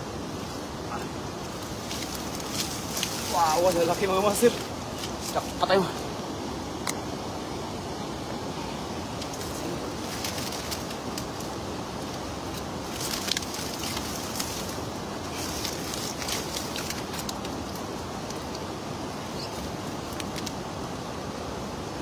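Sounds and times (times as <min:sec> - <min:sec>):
river noise: 0:00.0 - 0:22.0
wind: 0:00.0 - 0:22.0
wet net crackling and clicking: 0:01.5 - 0:05.4, 0:09.2 - 0:18.8, 0:19.8 - 0:20.6.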